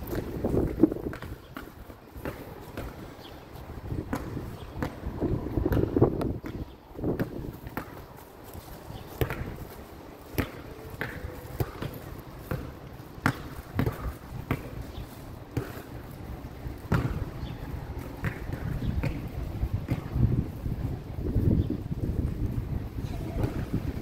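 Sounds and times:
basketball bouncing on hard court: 0.0s - 3.2s, 3.9s - 8.0s, 9.2s - 9.6s, 10.3s - 16.0s, 16.8s - 20.3s.

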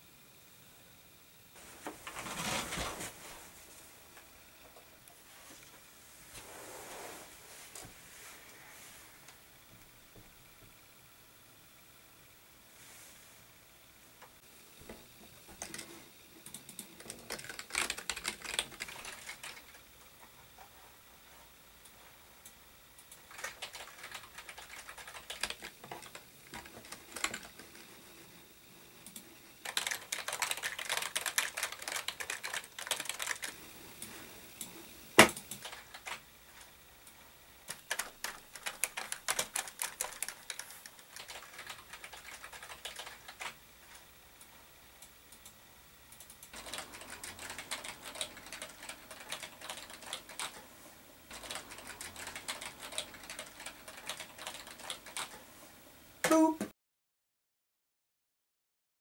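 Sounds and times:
typing on computer keyboard: 15.6s - 19.8s, 23.1s - 27.8s, 29.0s - 33.6s, 35.2s - 36.2s, 37.7s - 43.6s, 46.1s - 50.6s, 51.3s - 55.4s.

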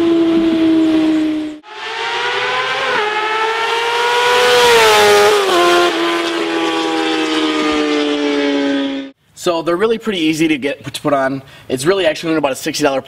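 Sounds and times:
motorcycle engine at high revs: 0.0s - 9.2s.

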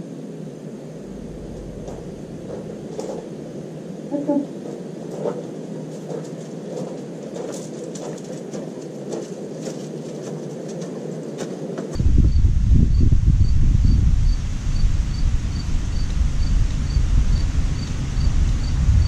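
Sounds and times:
wind buffeting microphone: 0.4s - 19.0s
faint ticks and rustles: 1.1s - 12.0s.

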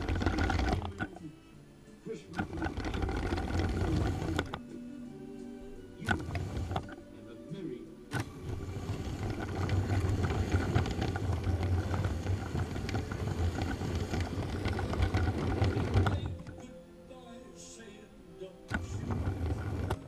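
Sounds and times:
plastic wheels rattling on track: 0.0s - 1.2s, 2.4s - 4.6s, 6.1s - 7.0s, 8.2s - 16.6s, 18.7s - 20.0s
toy train motor humming: 0.0s - 1.2s, 2.3s - 4.6s, 6.0s - 7.0s, 8.1s - 16.6s, 18.7s - 20.0s.

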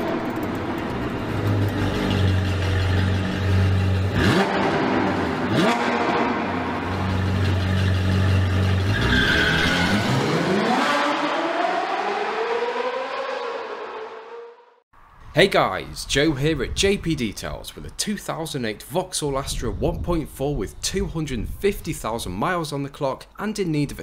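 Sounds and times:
sports car engine revving: 0.0s - 14.4s.

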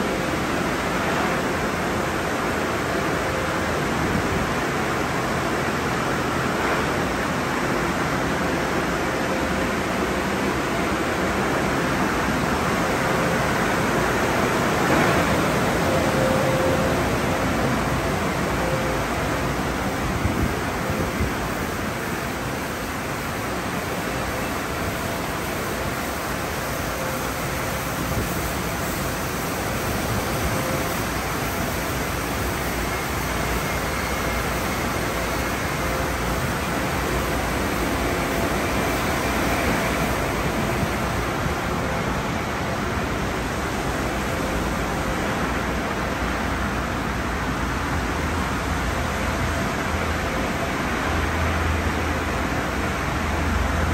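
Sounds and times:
water spraying: 10.8s - 49.0s.

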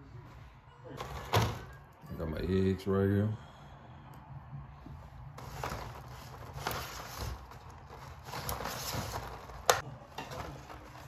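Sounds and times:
plastic crinkling and rustling: 5.4s - 11.0s.

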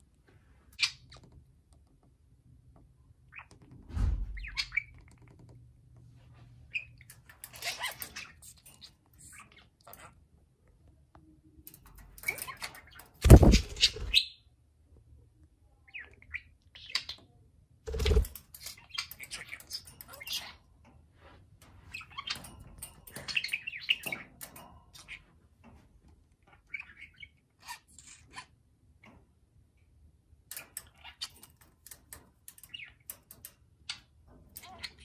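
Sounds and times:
budgerigars chirping and chattering: 4.4s - 5.0s, 11.8s - 14.3s, 17.9s - 20.6s, 26.4s - 28.6s.

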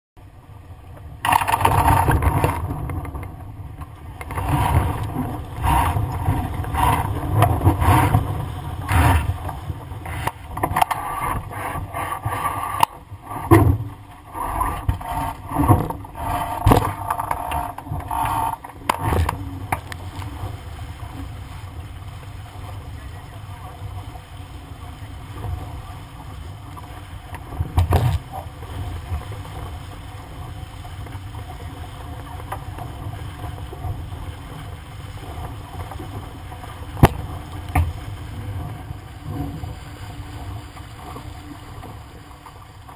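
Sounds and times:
water rushing along boat hull: 0.2s - 42.9s
knocks and bangs from boat: 13.4s - 14.0s, 27.7s - 28.3s, 37.0s - 38.1s.

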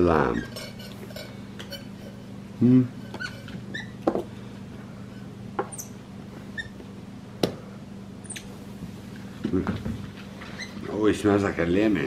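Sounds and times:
steady low hum: 0.0s - 12.0s
faint high squeaks: 3.2s - 4.0s, 6.6s - 6.8s
fruit knocking on countertop: 4.0s - 4.3s.

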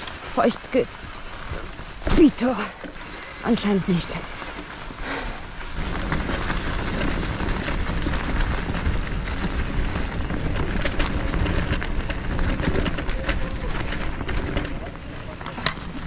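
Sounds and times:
bike rattles and knocks: 0.0s - 16.0s
tyres rumbling on trail: 0.0s - 16.0s
wind buffeting microphone: 4.8s - 16.0s.

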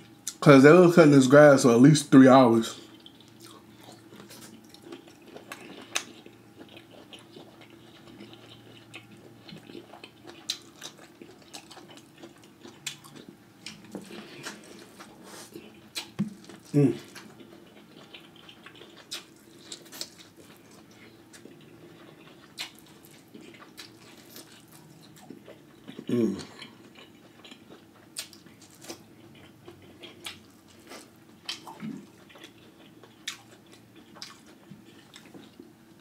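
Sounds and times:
faint low hum: 0.0s - 36.0s
wet chewing and lip smacks: 2.8s - 35.7s
person humming mm: 26.1s - 26.6s.

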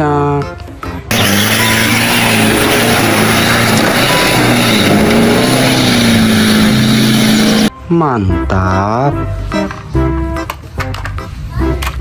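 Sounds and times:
loud steady rushing noise: 1.1s - 7.7s
truck churning through mud and water: 1.1s - 7.7s
truck engine labouring: 1.1s - 7.7s.

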